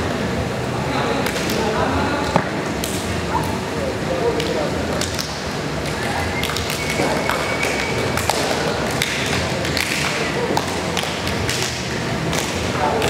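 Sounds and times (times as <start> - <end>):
chatter of voices in a hall: 0.0 - 13.0
hands slapping high-fives: 4.4 - 13.0.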